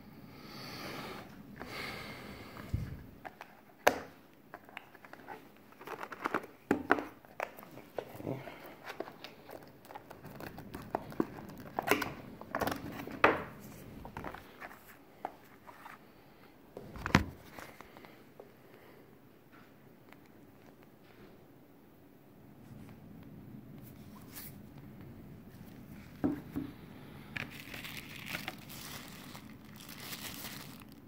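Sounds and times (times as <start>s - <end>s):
plastic sleeve crinkling: 4.5s - 15.9s, 27.2s - 31.0s.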